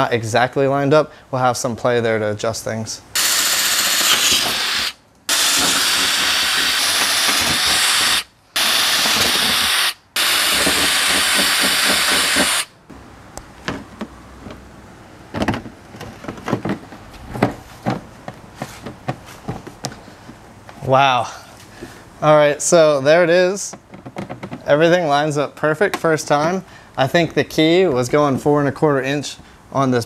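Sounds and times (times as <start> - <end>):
power drill drilling sheet metal: 3.2 - 12.7.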